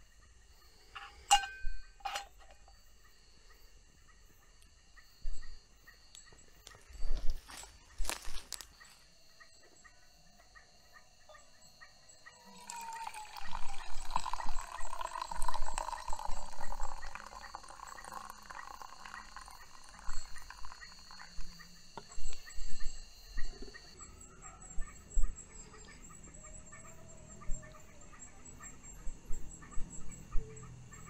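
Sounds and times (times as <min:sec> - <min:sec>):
high insect trilling: 0:11.4 - 0:24.2
hot water pouring into a mug: 0:12.4 - 0:21.4.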